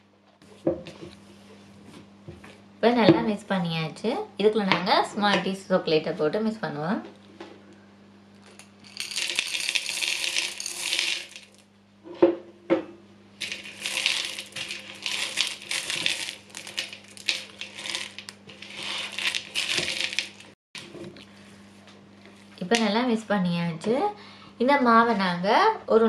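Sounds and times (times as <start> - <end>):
candies clattering against bowl: 8.4 - 11.6, 13.4 - 20.6
candies poured into a wooden bowl: 8.8 - 11.6, 13.4 - 20.6.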